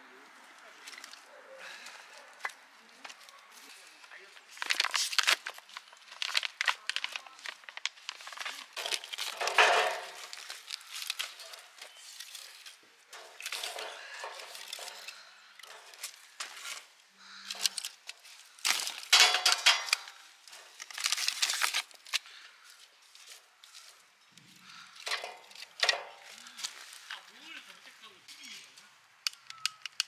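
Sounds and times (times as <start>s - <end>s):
rustling: 2.9s - 24.1s
firewood knocking on metal: 9.4s - 10.3s.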